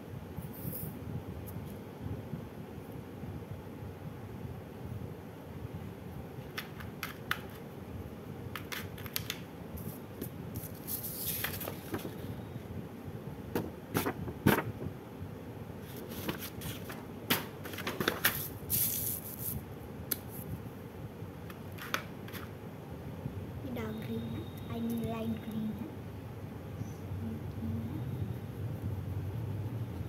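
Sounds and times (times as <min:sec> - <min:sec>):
paper being handled: 0:10.6 - 0:12.3, 0:13.6 - 0:14.9, 0:15.8 - 0:19.6.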